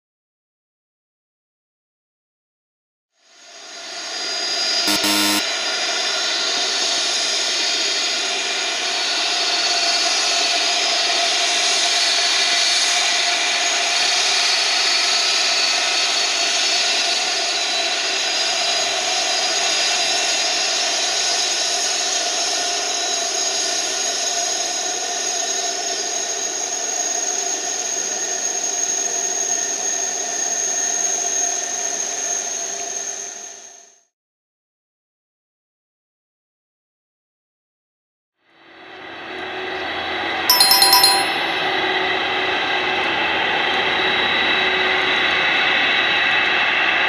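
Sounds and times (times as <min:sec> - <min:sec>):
thin piercing tone: 0:04.9 - 0:05.4.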